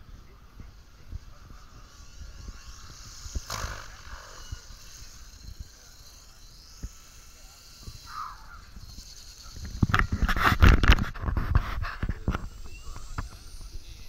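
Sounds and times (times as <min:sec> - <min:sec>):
wind buffeting microphone: 0:00.0 - 0:06.0
rc helicopter whine and rotor: 0:00.0 - 0:14.0.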